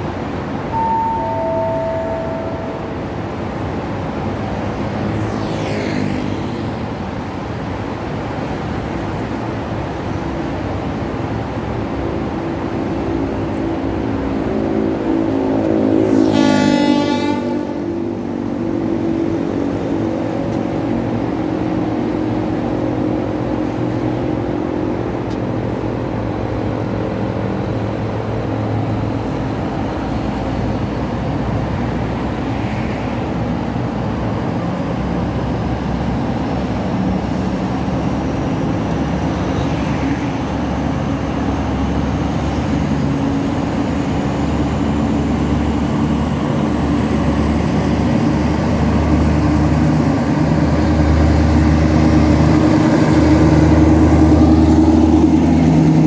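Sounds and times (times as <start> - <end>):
locomotive diesel drone: 0.0 - 56.0
road traffic passing: 0.0 - 56.0
vehicle horn two-note: 0.7 - 3.2, 16.3 - 17.9.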